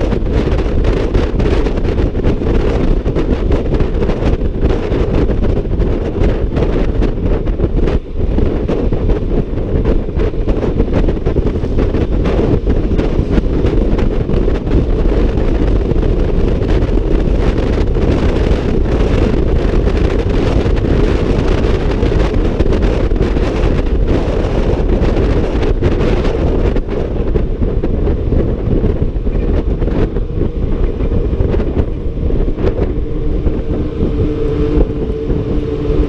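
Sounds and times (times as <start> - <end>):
road noise: 0.0 - 36.0
wind buffeting microphone: 0.0 - 36.0
scooter engine: 25.7 - 36.0.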